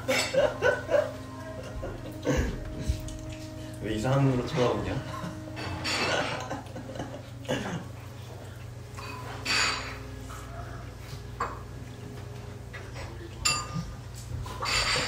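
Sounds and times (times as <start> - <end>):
utensils clinking on bowls: 0.0 - 7.8, 8.9 - 10.4, 12.7 - 15.0
low steady hum: 0.0 - 15.0.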